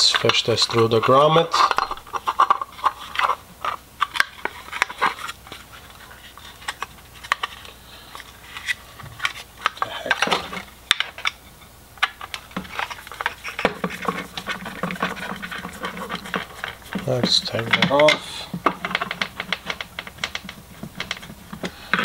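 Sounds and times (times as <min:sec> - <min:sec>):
plastic and metal parts clicking: 0:12.0 - 0:22.0.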